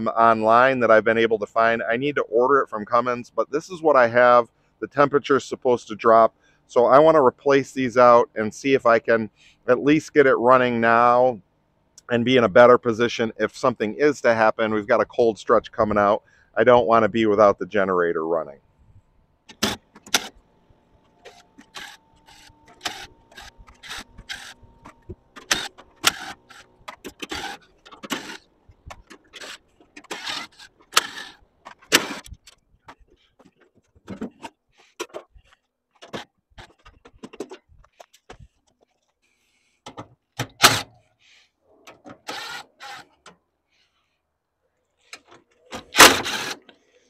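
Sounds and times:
cordless driver spinning screws: 0:21.1 - 0:32.5, 0:42.2 - 0:43.2, 0:46.0 - 0:46.7.

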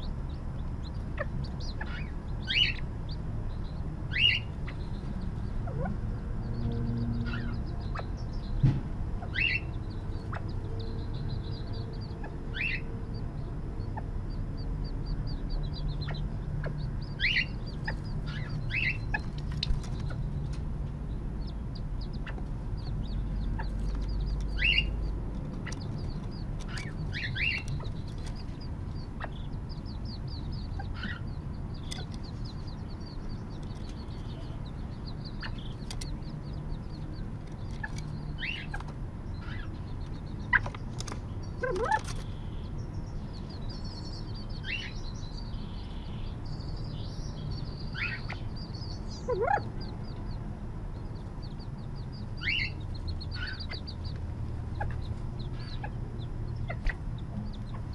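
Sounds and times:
quail chicks peeping: 0:00.0 - 0:57.9
steady low rumble: 0:00.0 - 0:57.9
fast trills of high chirps: 0:51.2 - 0:57.9.

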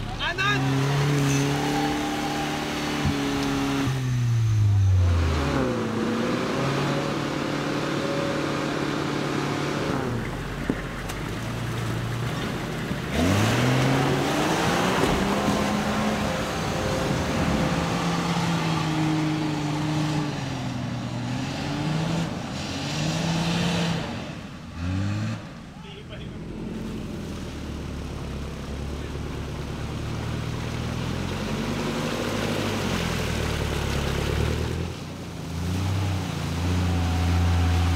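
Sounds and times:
off-road engines revving: 0:00.0 - 0:37.9.

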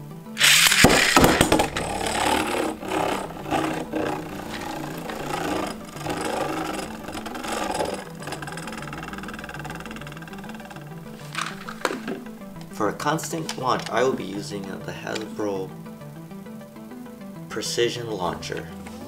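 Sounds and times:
string launcher whirring rip: 0:00.4 - 0:12.4
spinning top rattling on plastic: 0:00.4 - 0:15.3.

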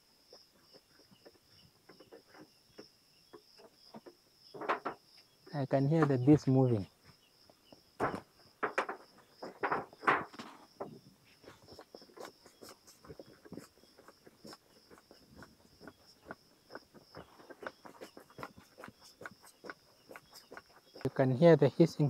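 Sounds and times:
insect trilling: 0:00.0 - 0:22.0.

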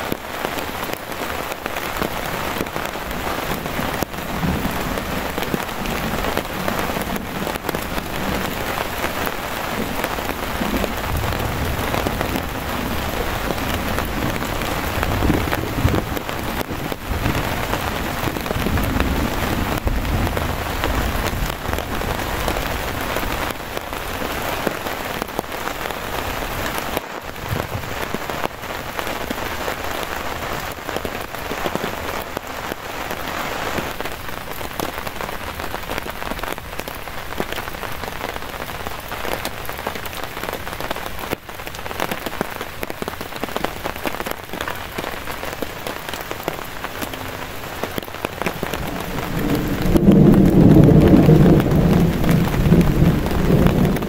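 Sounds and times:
rain falling: 0:00.0 - 0:54.0
thunder rumbling: 0:01.6 - 0:32.2, 0:45.1 - 0:54.0.

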